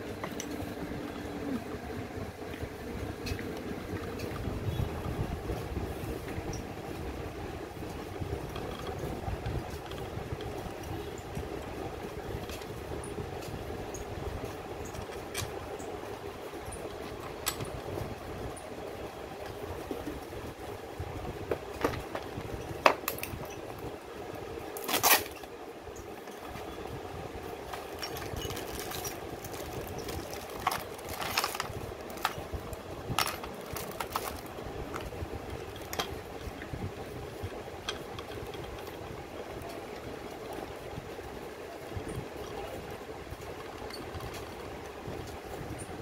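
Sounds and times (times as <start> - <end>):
steady background noise: 0.0 - 46.0
metal parts clicking and clinking: 27.7 - 35.1.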